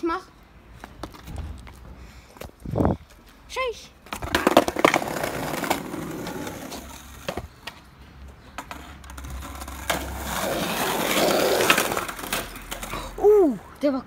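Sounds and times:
skateboard wheels rolling on paving: 0:00.7 - 0:14.0
skateboard clacks: 0:04.1 - 0:07.8.

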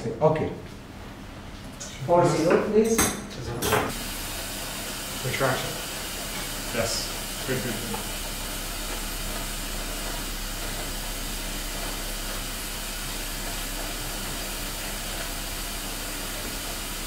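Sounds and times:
steady hiss: 0:03.9 - 0:17.0
low hum: 0:06.0 - 0:17.0.

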